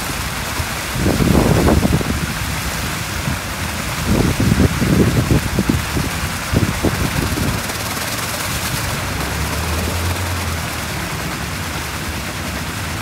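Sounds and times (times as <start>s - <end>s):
churning splashing water: 0.0s - 13.0s.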